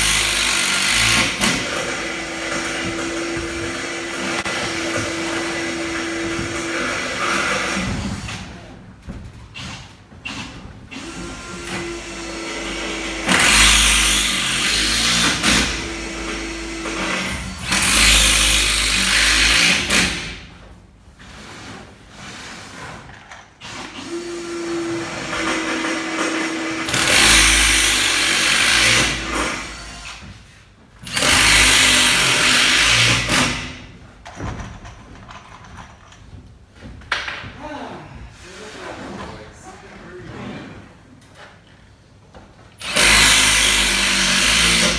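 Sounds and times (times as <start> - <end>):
drill driving screws into wood: 0.0 - 8.5, 9.6 - 20.4, 23.6 - 30.3, 31.0 - 33.9, 42.8 - 44.9.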